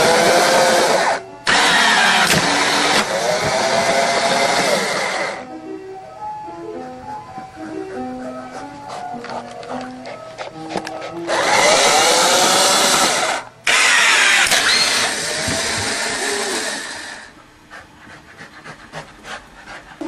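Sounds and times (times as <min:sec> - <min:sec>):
motor-driven machine whirring: 0:00.0 - 0:05.4, 0:11.3 - 0:17.3.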